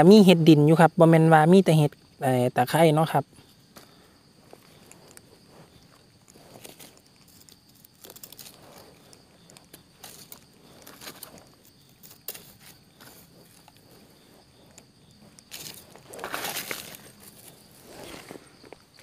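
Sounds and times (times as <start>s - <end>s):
high insect drone: 0.0s - 19.0s
dry leaves rustling and crackling: 4.7s - 18.5s.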